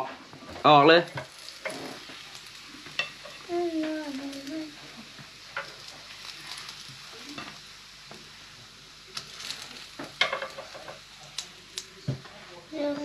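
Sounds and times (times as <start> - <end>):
burger patties sizzling: 0.0 - 13.0
metal tongs clacking on grate: 3.0 - 3.4, 7.4 - 7.6, 9.2 - 11.9.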